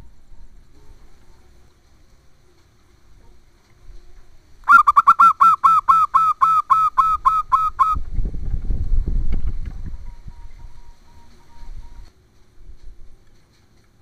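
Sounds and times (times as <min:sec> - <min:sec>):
dove cooing: 0:04.7 - 0:08.0
low rumbling noise: 0:06.9 - 0:13.2.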